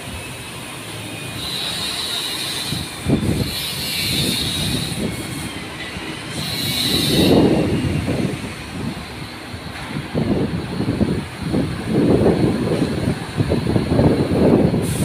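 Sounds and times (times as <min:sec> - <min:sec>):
high metallic squealing: 0:00.2 - 0:09.6
steady mechanical rumble: 0:07.3 - 0:15.0.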